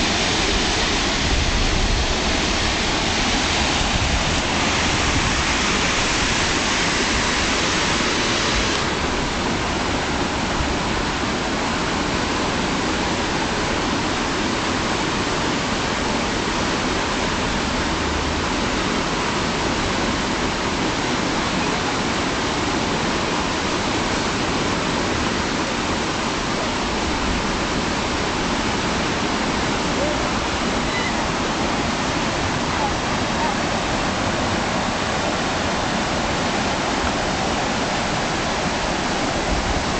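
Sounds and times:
river rapids rushing: 0.0 - 39.9.

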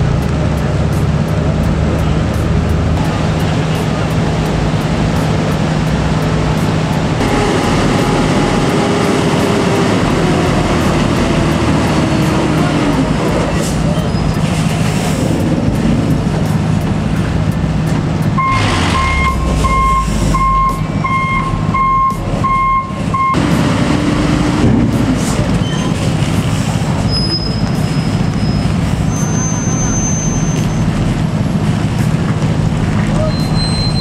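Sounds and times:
truck diesel engine running: 0.0 - 34.0
reversing alarm beeping: 18.4 - 23.4.

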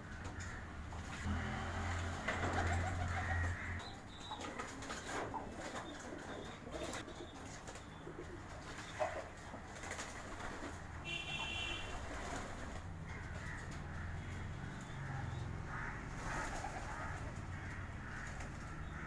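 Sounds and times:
pigeons cooing: 2.0 - 10.8, 11.4 - 19.0
pigeons splashing in water: 8.8 - 13.7.

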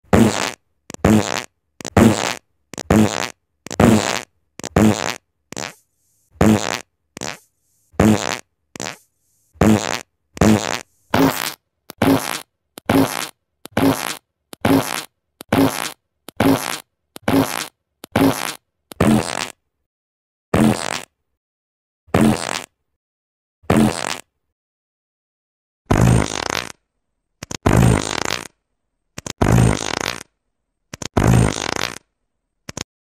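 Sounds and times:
short low farts: 0.1 - 5.8, 6.4 - 7.4, 8.0 - 9.0, 9.6 - 19.6, 20.6 - 21.1, 22.1 - 22.7, 23.7 - 24.3, 25.9 - 26.8, 27.6 - 28.5, 29.4 - 30.3, 31.1 - 32.0.

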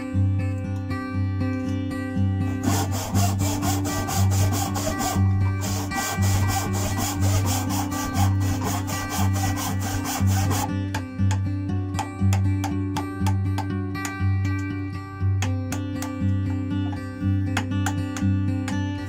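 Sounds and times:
acoustic guitar music: 0.0 - 19.0
hand saw cutting wood: 2.6 - 11.0.

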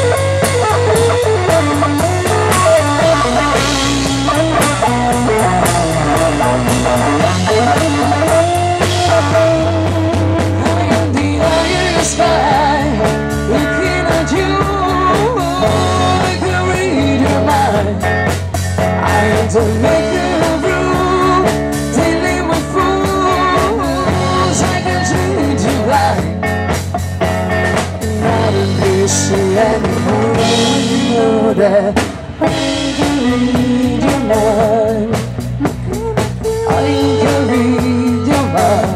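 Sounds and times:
drum kit: 0.0 - 38.9
electric guitars: 0.0 - 38.9
woman singing: 10.4 - 18.1, 19.0 - 26.3, 28.0 - 38.9.

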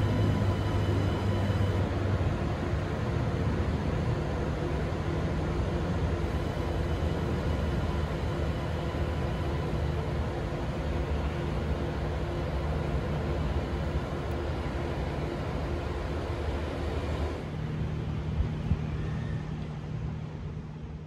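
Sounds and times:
electric train pulling out: 0.0 - 2.1.

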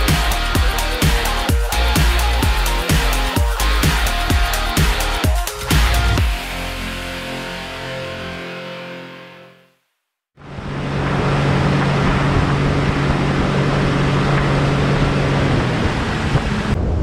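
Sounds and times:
boat engine running: 0.0 - 6.9, 10.4 - 17.0
music: 0.0 - 10.1
water noise: 10.4 - 17.0
wind rush: 10.4 - 17.0.

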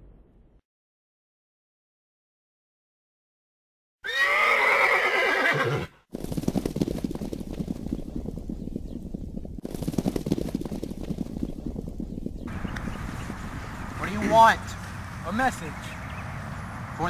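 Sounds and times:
horse neighing: 4.0 - 6.0
galloping hoofbeats: 6.1 - 15.0.

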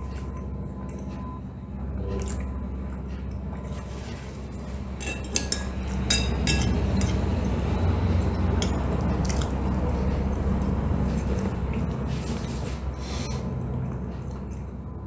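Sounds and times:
low hum: 0.0 - 15.0
cutlery clinking on plate: 5.0 - 7.2.

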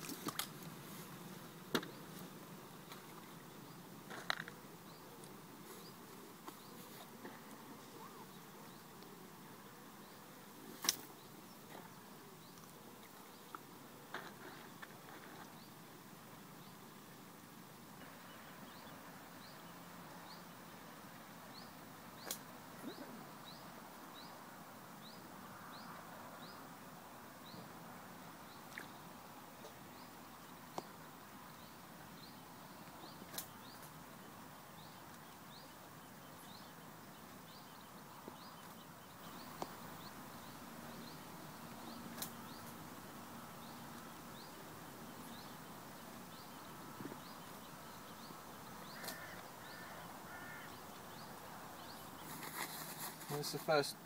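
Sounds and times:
bird chirping: 34.8 - 53.6.

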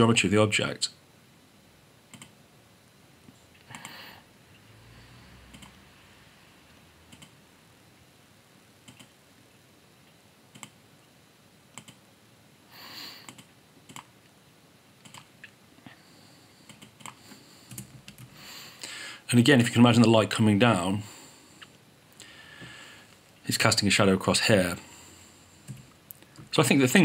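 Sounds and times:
keyboard and mouse clicks: 2.1 - 2.4, 5.5 - 5.8, 7.1 - 7.4, 8.8 - 9.1, 10.5 - 10.8, 11.7 - 12.0, 13.2 - 14.1, 15.0 - 15.6, 16.7 - 18.3.

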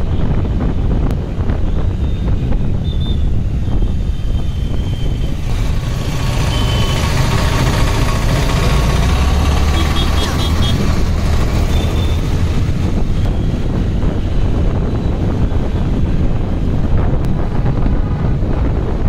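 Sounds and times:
scooter engine and road rumble: 0.0 - 19.0
vehicle horn beeps: 9.7 - 10.9, 11.7 - 12.2.

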